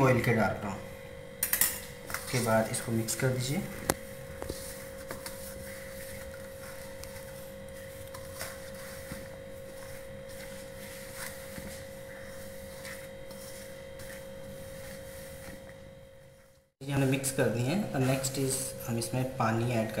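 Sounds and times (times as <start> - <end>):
steady humming tone: 0.0 - 20.0
hands rubbing flour in bowl: 4.0 - 15.6.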